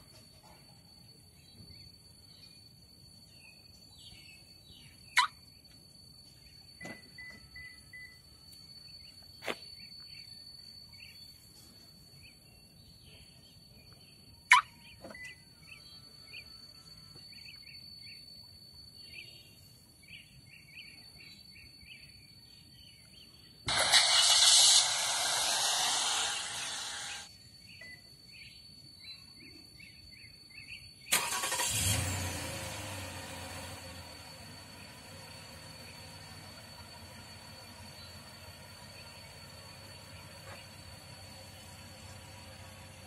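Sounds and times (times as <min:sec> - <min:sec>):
faint high-pitched whine: 0:00.0 - 0:31.0.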